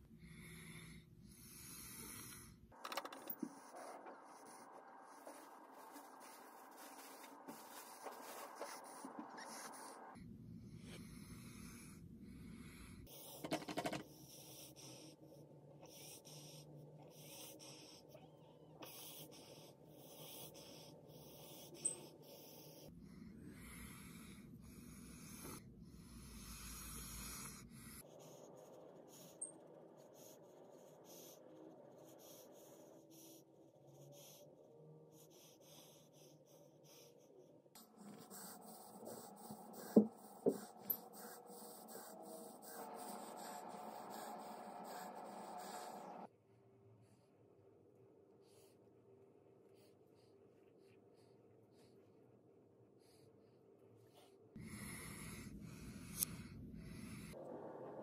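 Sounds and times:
makeup brush rubbing on skin: 5.2s - 9.4s.

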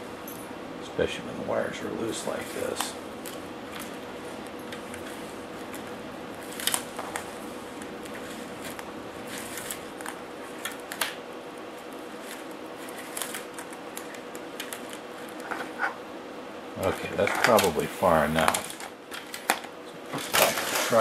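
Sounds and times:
faint steady hum: 0.0s - 21.0s
wires rustling in plastic wrap: 2.0s - 15.9s, 16.8s - 21.0s.

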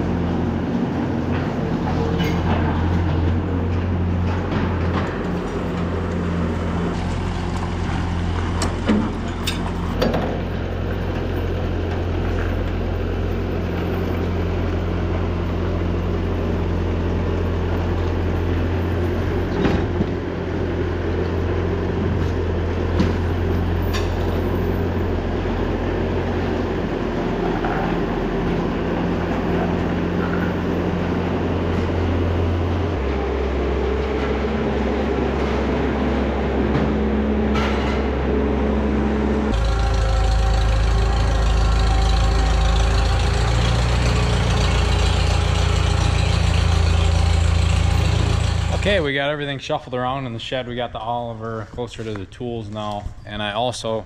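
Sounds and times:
diesel engine running: 0.0s - 52.2s
metal clanks: 1.3s - 6.3s, 6.9s - 12.8s.

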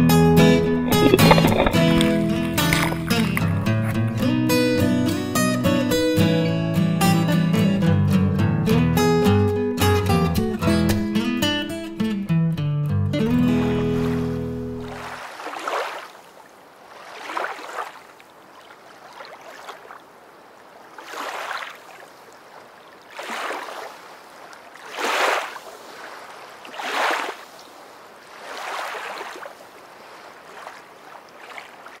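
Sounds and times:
water washing in surges: 13.5s - 32.0s.

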